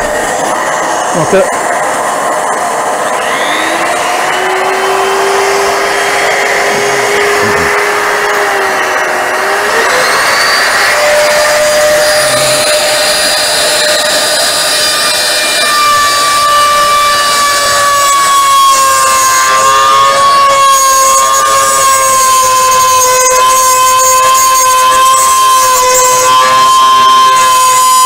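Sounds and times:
rushing air noise: 0.0s - 14.7s
wood router motor whine: 0.0s - 28.0s.

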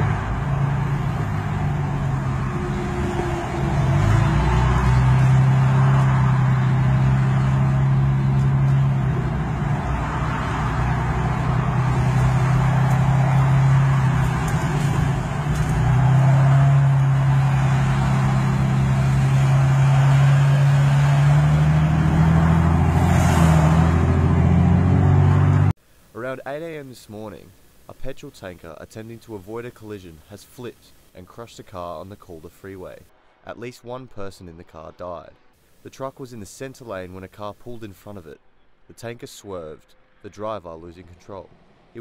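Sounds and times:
car engine drone: 0.0s - 25.8s.

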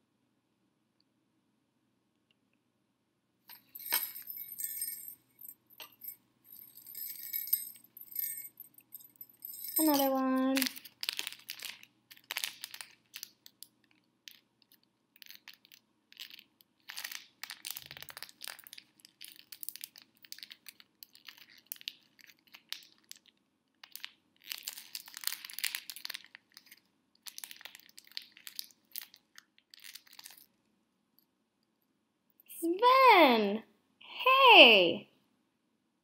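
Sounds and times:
wrapping paper crinkling and tearing: 27.3s - 30.4s.

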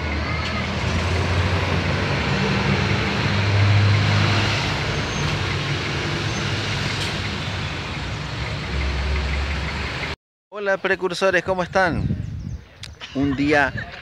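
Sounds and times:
cars passing: 0.0s - 10.2s
heavy truck engine: 0.0s - 10.2s.

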